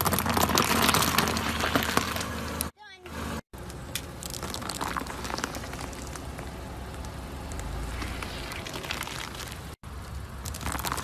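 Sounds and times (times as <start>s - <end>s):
foam and spaghetti crackling: 0.0s - 2.3s, 4.2s - 6.4s, 8.0s - 9.8s, 10.4s - 11.0s
tyre rumbling on asphalt: 0.0s - 2.7s, 3.6s - 11.0s.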